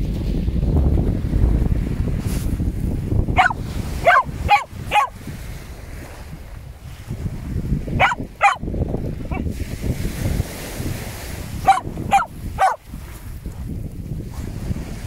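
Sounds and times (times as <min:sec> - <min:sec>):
surf rumble: 0:00.0 - 0:15.0
wind: 0:00.0 - 0:15.0
dog barking: 0:03.4 - 0:05.2, 0:08.0 - 0:08.7, 0:11.6 - 0:12.8.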